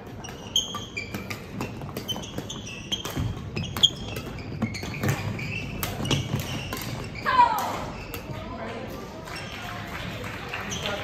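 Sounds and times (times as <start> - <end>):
shoes squeaking on floor: 0.0 - 8.4.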